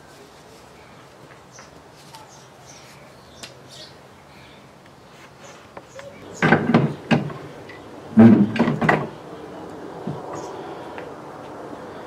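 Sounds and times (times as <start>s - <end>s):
metal clunks and knocks: 6.4s - 7.4s, 8.2s - 9.2s.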